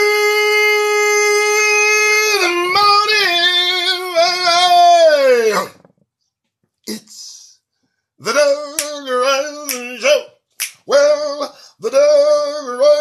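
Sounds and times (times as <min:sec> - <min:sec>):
man singing: 0:00.0 - 0:05.8, 0:08.2 - 0:13.0
sharp snaps: 0:08.7 - 0:09.0, 0:09.7 - 0:09.9, 0:10.6 - 0:10.9.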